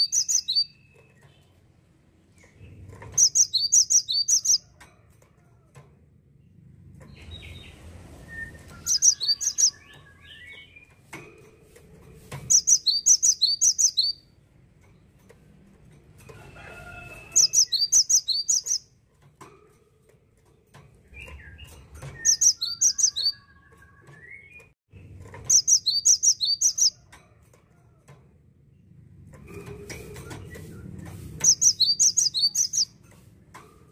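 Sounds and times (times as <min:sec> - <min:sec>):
bird singing ringing notes: 0:00.0 - 0:01.0, 0:03.2 - 0:04.6, 0:08.7 - 0:10.8, 0:12.5 - 0:14.2, 0:17.4 - 0:18.9, 0:21.2 - 0:24.7, 0:25.5 - 0:27.0, 0:31.5 - 0:32.9.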